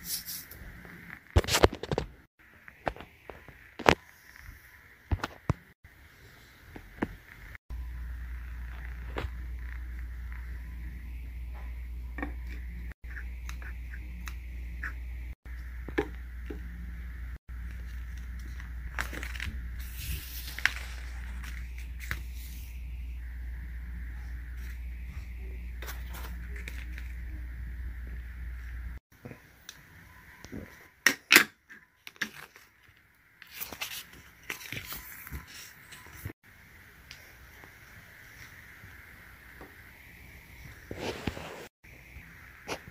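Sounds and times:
low background hum: 7.7 - 30.4.

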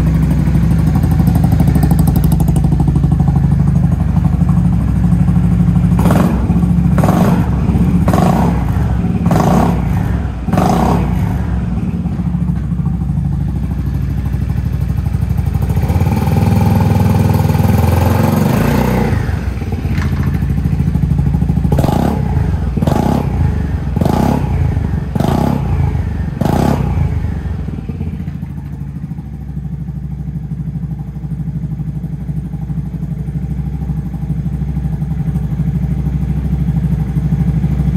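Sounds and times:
scooter engine idling and revving: 0.0 - 37.9.

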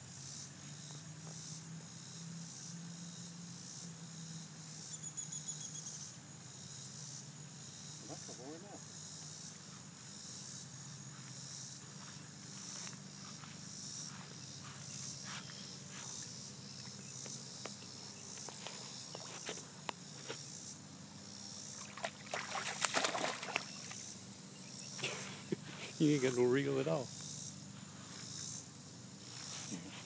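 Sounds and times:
insects chirping: 0.0 - 30.0
fish splashing in water: 21.7 - 24.1
small water ticks: 21.7 - 24.1.

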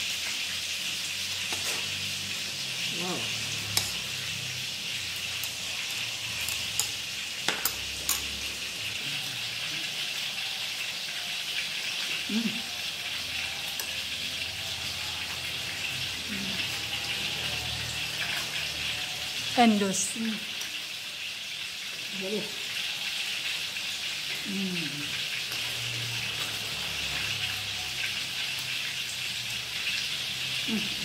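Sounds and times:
spoons clinking on ceramic plates: 5.2 - 8.5.

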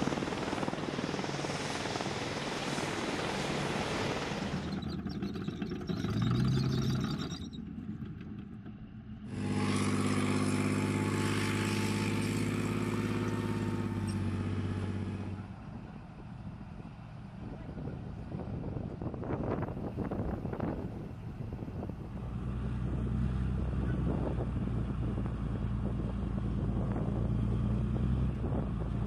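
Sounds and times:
helicopter rotors and turbines: 0.0 - 29.0
vehicle engine low drone: 0.0 - 29.0.

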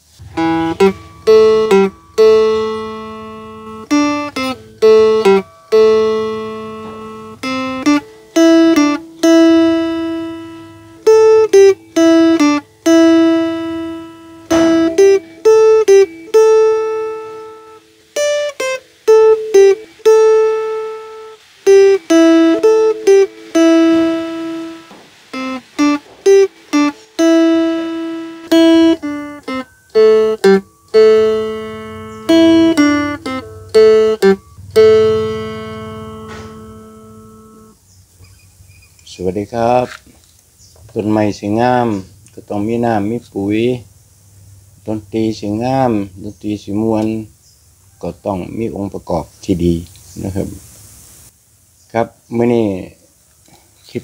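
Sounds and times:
plucked lute melody: 0.0 - 37.8.

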